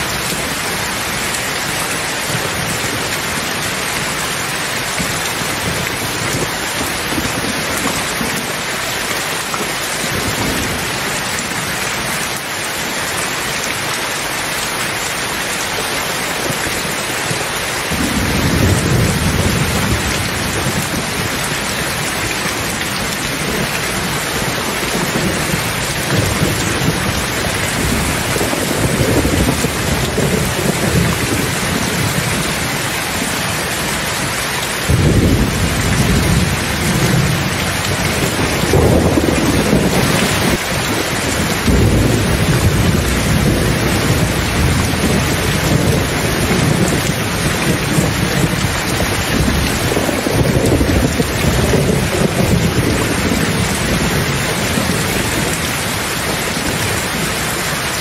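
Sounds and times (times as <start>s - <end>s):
steady rain: 0.0s - 58.0s
rolling thunder: 17.9s - 33.6s, 34.8s - 57.4s.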